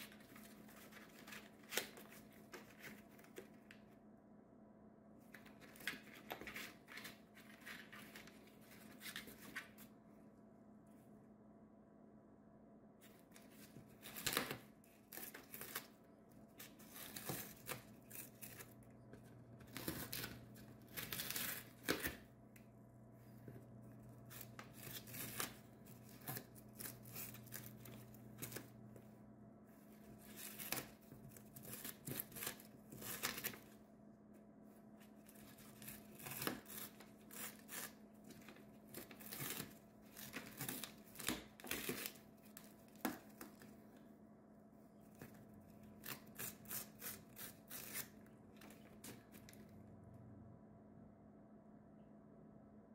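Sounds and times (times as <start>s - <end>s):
bird shredding cardboard: 0.0s - 3.8s, 5.3s - 9.8s, 13.0s - 22.3s, 23.4s - 28.8s, 29.9s - 33.8s, 35.0s - 43.7s, 45.1s - 49.6s.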